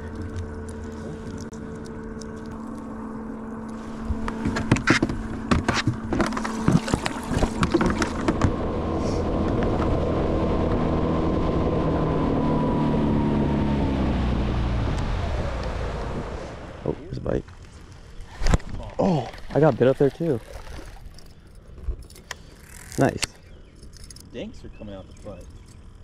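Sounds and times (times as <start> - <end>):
outboard motor running at speed: 0.0 - 26.0
steady hum: 0.0 - 26.0.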